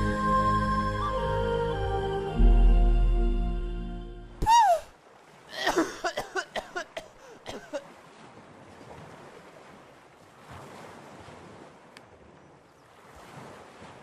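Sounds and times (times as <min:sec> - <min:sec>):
wind: 0:00.0 - 0:14.0
ocean waves: 0:03.8 - 0:14.0.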